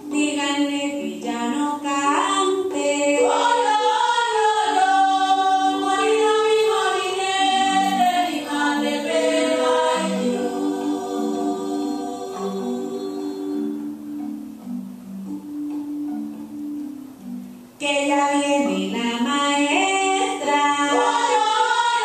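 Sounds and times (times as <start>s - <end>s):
chorus of voices singing: 2.7s - 14.0s, 19.7s - 22.0s.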